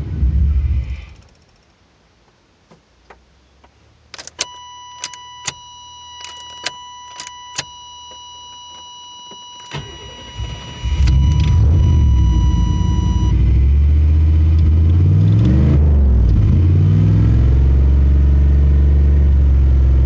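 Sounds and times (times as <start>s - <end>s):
steady electronic warning tone: 4.4s - 14.1s
car engine running: 9.8s - 20.0s.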